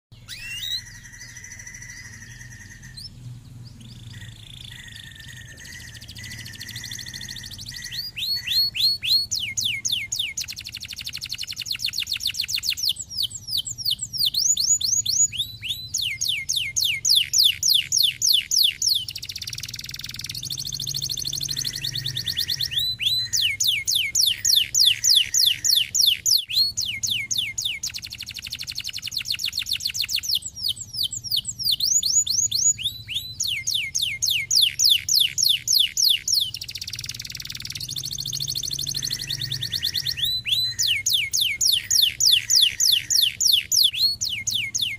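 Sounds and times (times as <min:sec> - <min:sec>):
canary singing fast trills: 0:00.1 - 0:44.9.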